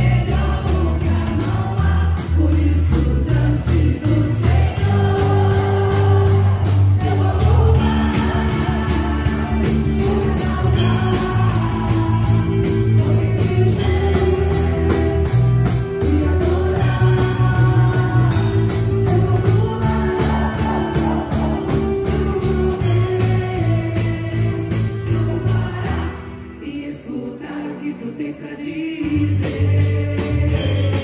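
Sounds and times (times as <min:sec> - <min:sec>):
drum beat: 0:00.0 - 0:24.3
live pop-rock band playing: 0:00.0 - 0:27.2, 0:29.0 - 0:31.0
voices singing: 0:00.0 - 0:31.0.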